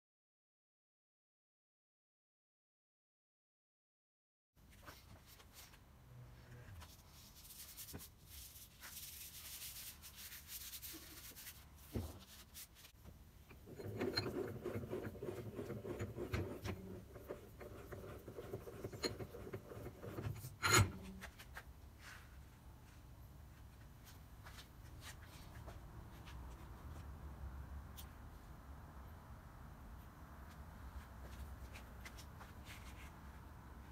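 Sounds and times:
hand rubbing metal vise: 13.4s - 21.4s
vise screw scraping and ticking: 13.5s - 21.2s.

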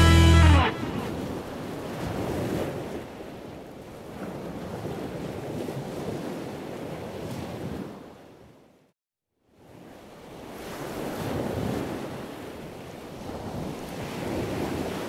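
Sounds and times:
sea waves washing: 0.0s - 3.0s.

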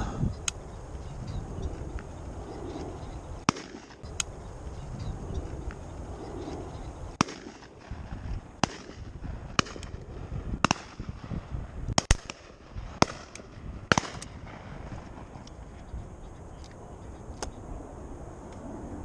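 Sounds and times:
distant shotgun shots: 3.4s - 4.0s, 7.2s - 10.0s, 10.6s - 11.3s, 11.9s - 15.4s.

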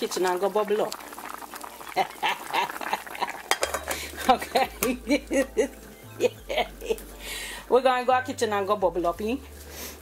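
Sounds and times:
woman laughing: 2.0s - 3.5s, 4.1s - 7.1s
glass lid clinking on pot: 3.5s - 5.0s.

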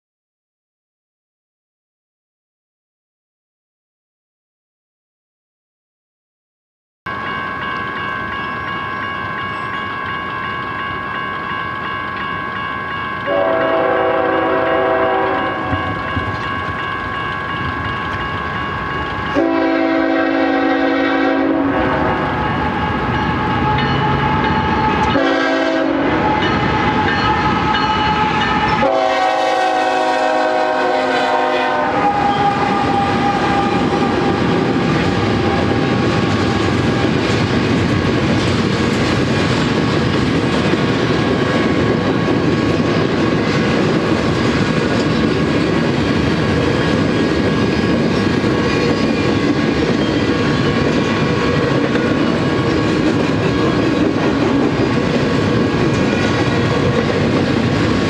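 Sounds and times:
crossing warning bell ringing: 7.1s - 37.2s, 40.0s - 42.8s, 46.6s - 57.5s
train wheels clattering on rails: 7.2s - 21.4s, 22.0s - 58.0s
locomotive air horn: 13.3s - 15.8s, 19.4s - 34.4s.

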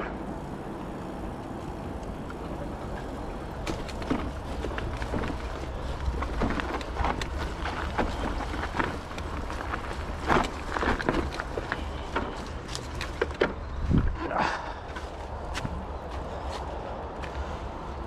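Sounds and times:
steady low rumble: 0.0s - 13.0s
footsteps on a path: 1.0s - 18.0s.

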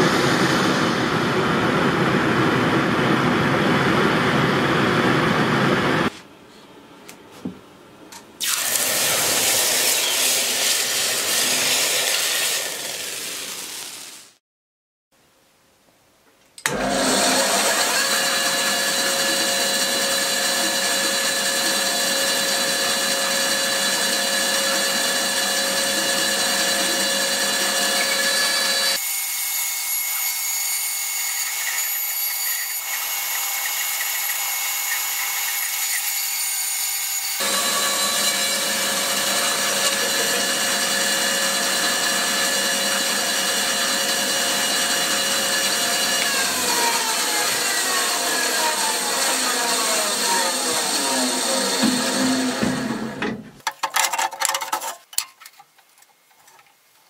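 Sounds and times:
band saw whining: 8.4s - 14.0s, 16.6s - 53.4s
saw blade cutting wood: 8.4s - 14.0s, 16.7s - 53.2s.

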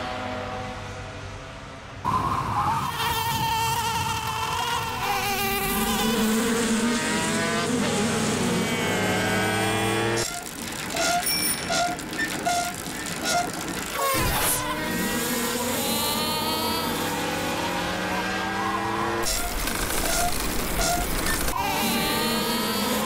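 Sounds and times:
bees buzzing: 3.4s - 10.7s, 13.8s - 17.3s, 19.2s - 23.0s.

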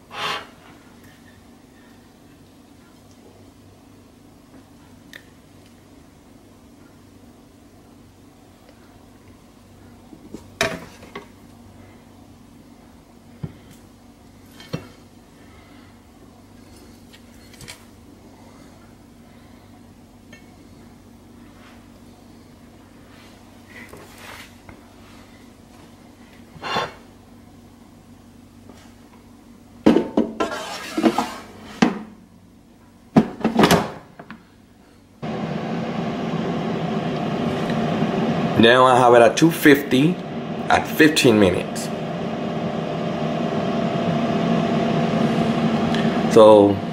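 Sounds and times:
low steady hum: 34.6s - 46.9s
air fryer fan whirring: 35.2s - 46.9s.

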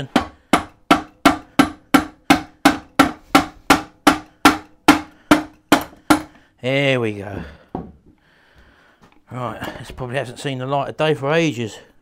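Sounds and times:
hammer tapping on metal: 0.0s - 6.4s.

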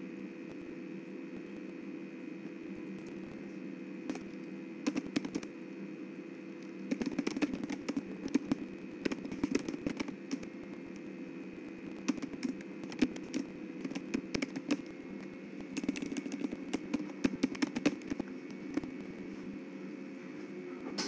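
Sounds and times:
electrical hum: 0.0s - 21.0s
keyboard typing: 4.1s - 5.5s, 6.6s - 11.0s, 11.7s - 19.3s
mouse clicking: 4.1s - 5.5s, 6.6s - 11.0s, 12.0s - 15.0s, 15.6s - 19.0s.

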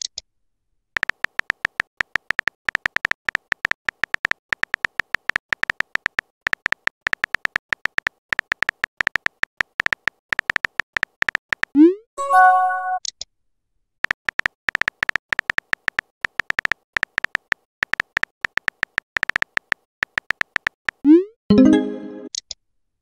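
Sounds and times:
phone keyboard key clicks: 1.0s - 11.7s, 14.0s - 21.0s.

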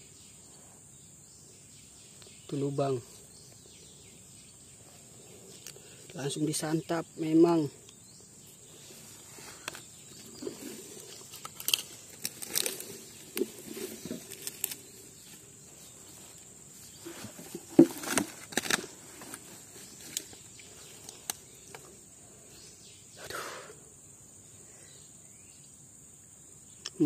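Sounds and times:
insects droning: 0.0s - 27.0s
leaves rustling and handling clicks: 8.9s - 21.9s.

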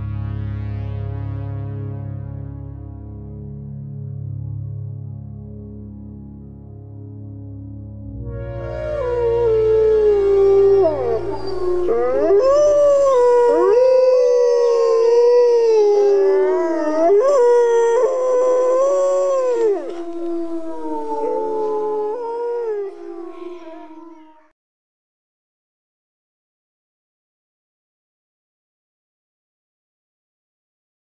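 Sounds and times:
low background music: 0.0s - 24.1s
wolves howling: 8.5s - 24.4s.

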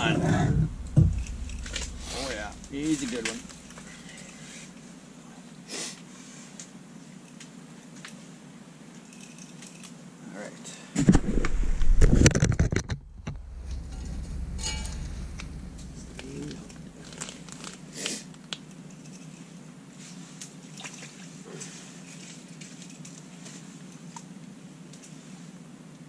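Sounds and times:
low steady hum: 0.0s - 26.0s
fishing gear clicks and rustles: 0.8s - 4.8s, 8.9s - 10.0s, 16.2s - 24.3s.

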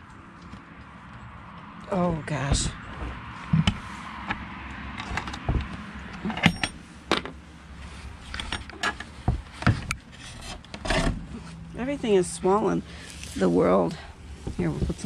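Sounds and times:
wood creaking and knocking: 2.4s - 7.4s, 8.3s - 11.4s
rustling: 5.0s - 15.0s.

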